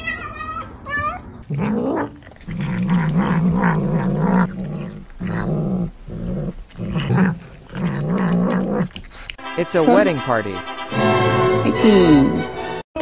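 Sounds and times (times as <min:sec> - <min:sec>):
cat growling: 0:00.0 - 0:09.3.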